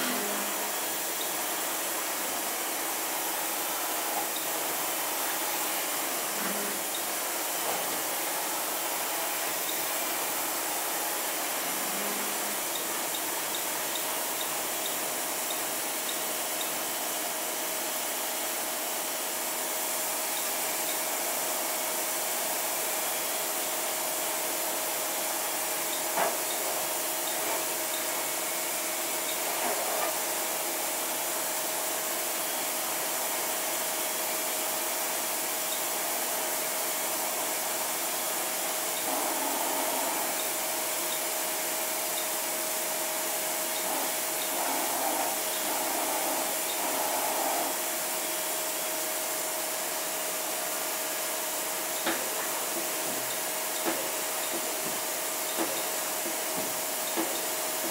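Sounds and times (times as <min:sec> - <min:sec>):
constant machine whine: 0:00.0 - 0:57.9
lathe machine hum and hiss: 0:00.0 - 0:57.9.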